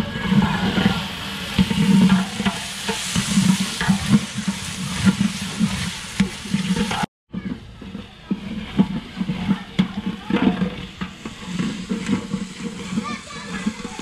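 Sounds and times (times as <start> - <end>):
food sizzling in pot: 0.0 - 14.0
metal stirrer scraping metal pot: 0.0 - 14.0.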